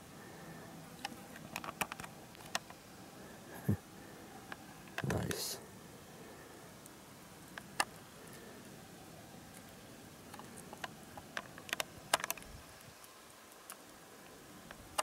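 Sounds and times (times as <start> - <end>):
small clicks and ticks: 0.9 - 2.8, 6.8 - 8.5, 9.5 - 15.0.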